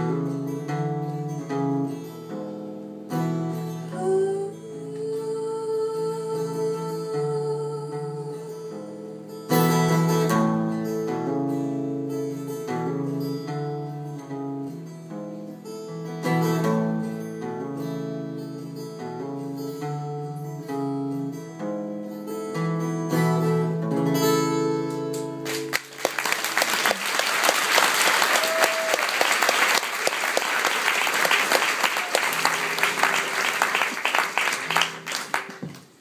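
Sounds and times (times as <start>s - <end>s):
acoustic guitar picking: 0.0s - 25.8s, 31.7s - 35.7s
audience applause: 25.4s - 36.0s.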